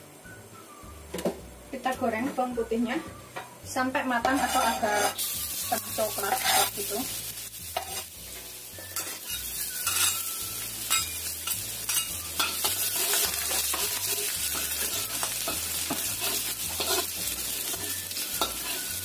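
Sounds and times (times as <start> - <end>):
garlic sizzling in oil: 3.6 - 19.0
utensil scraping pan: 4.2 - 6.9, 9.0 - 19.0.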